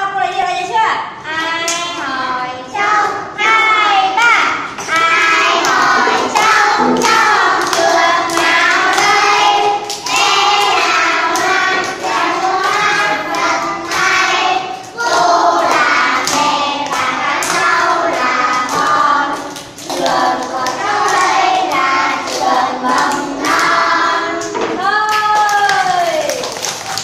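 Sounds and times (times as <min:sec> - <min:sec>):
young children singing: 0:01.4 - 0:25.2
hand claps: 0:04.8 - 0:14.2, 0:14.8 - 0:23.8, 0:24.4 - 0:27.0.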